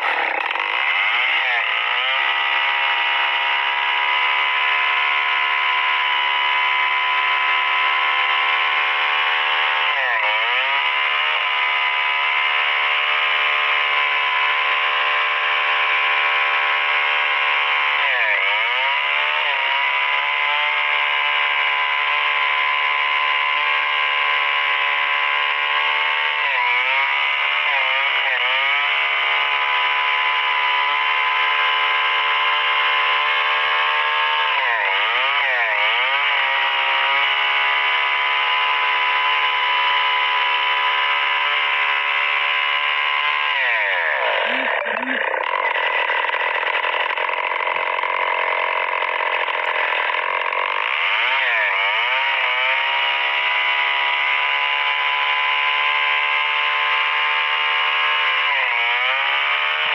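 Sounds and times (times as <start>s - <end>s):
chainsaw cutting log: 0.0s - 59.9s.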